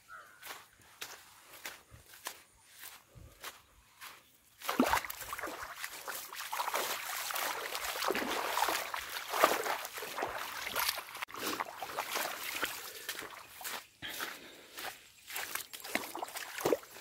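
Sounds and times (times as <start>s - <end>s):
stream of water rushing and trickling: 4.6s - 17.0s.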